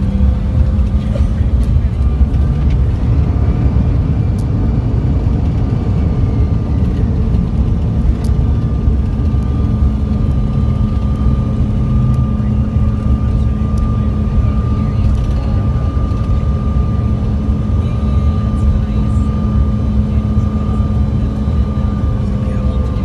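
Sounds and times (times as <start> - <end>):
high engine whine: 0.0 - 23.0
jet engine cabin rumble: 0.0 - 23.0.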